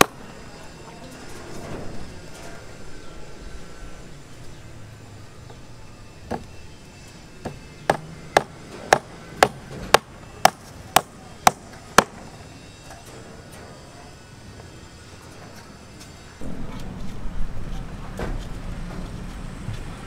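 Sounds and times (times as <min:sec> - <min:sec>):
hammer striking steel rebar: 0:00.0 - 0:00.3, 0:07.4 - 0:13.9.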